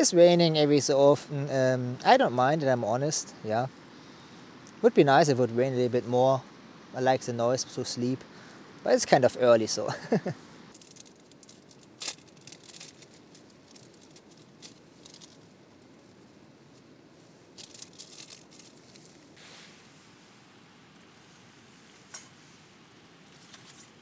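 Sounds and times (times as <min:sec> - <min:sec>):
sachet crinkling: 0:10.7 - 0:16.3, 0:17.5 - 0:19.4.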